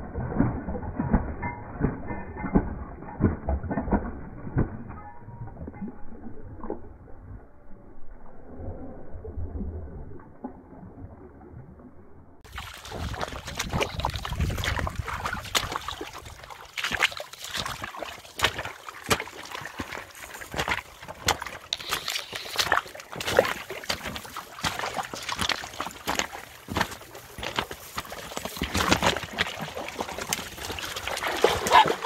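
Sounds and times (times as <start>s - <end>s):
dogs splashing through water: 12.4s - 32.0s.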